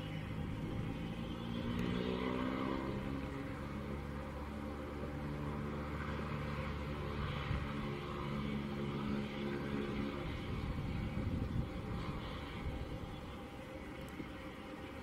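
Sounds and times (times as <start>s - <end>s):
jet engines humming: 0.0s - 15.0s.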